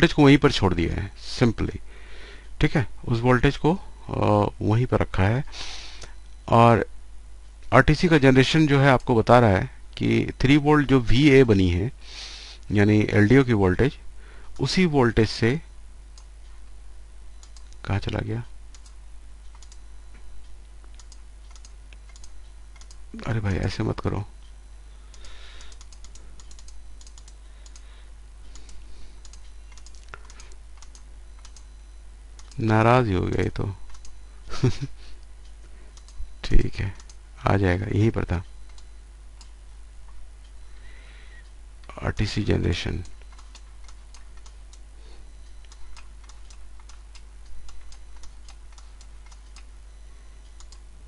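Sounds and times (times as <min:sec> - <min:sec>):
steady low hum: 0:00.0 - 0:51.0
keyboard typing: 0:18.7 - 0:19.8, 0:20.9 - 0:23.0, 0:25.1 - 0:27.9, 0:28.5 - 0:31.7, 0:32.4 - 0:34.2, 0:43.0 - 0:44.8, 0:45.5 - 0:49.8.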